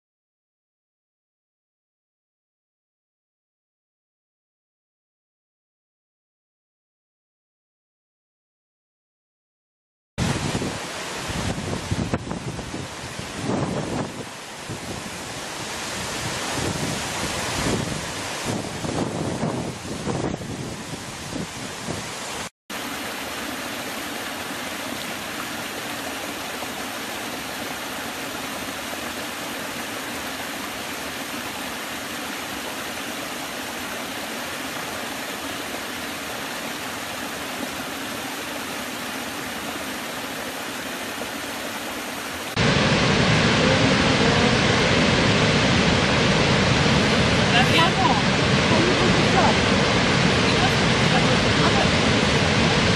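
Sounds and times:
large waterfall roaring: 0:10.2 - 0:52.9
water rushing over rocks: 0:10.2 - 0:52.9.

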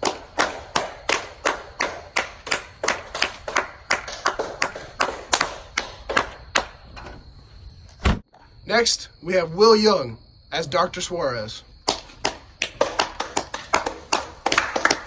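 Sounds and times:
sharp claps: 0:00.0 - 0:06.8, 0:11.8 - 0:15.0.

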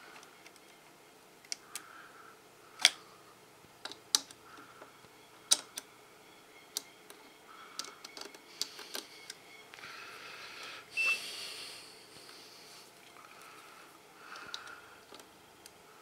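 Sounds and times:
test probes clicking on pins: 0:03.8 - 0:04.7, 0:05.4 - 0:05.9, 0:06.7 - 0:09.8, 0:14.2 - 0:15.8.

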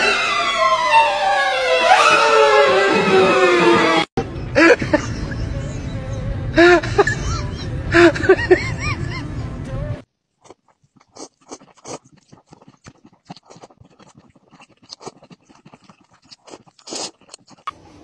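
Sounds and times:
music: 0:09.2 - 0:10.0.

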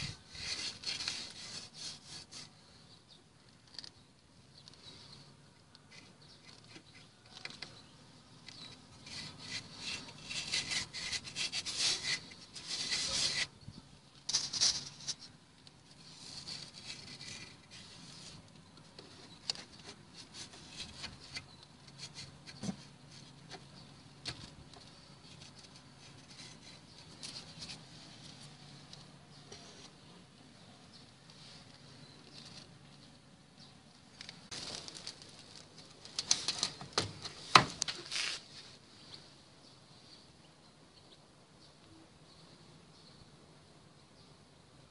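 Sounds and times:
hand scraping steel arm: 0:00.0 - 0:02.6, 0:05.8 - 0:13.6.

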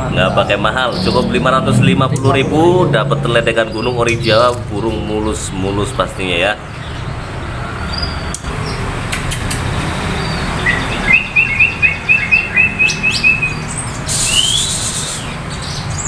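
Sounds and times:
songbirds chirping: 0:00.0 - 0:16.0
rising bird whistle: 0:10.6 - 0:14.8.

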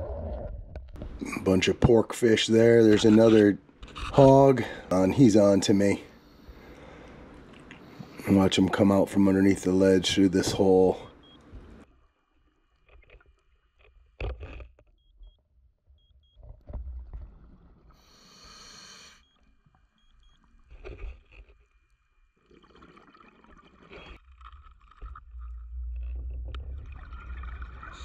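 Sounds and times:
diver breath hiss: 0:18.0 - 0:19.2
bubbling exhaled air: 0:26.6 - 0:28.0.

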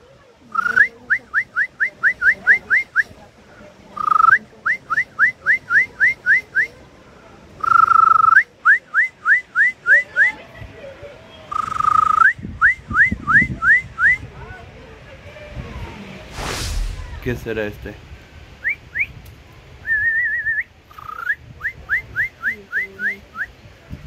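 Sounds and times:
songbird whistled phrase: 0:19.8 - 0:23.5.

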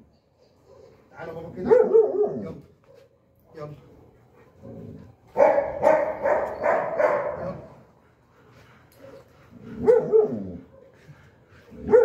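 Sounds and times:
dog barking: 0:01.6 - 0:03.1, 0:05.3 - 0:07.8, 0:09.8 - 0:11.0.

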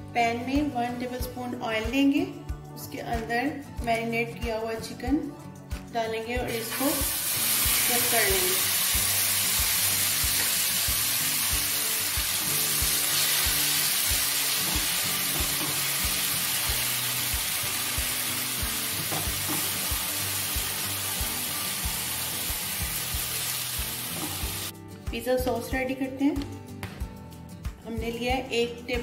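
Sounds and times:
background music with steady beat: 0:00.0 - 0:29.0
chicken sizzling in hot oil: 0:06.6 - 0:24.7.

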